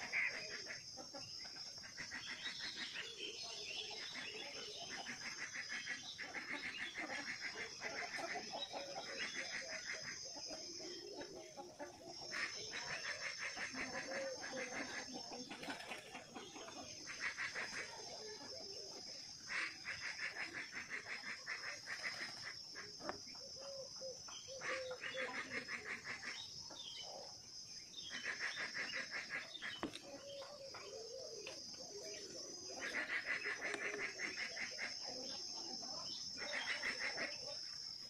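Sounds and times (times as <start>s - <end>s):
high insect drone: 16.6s - 38.0s.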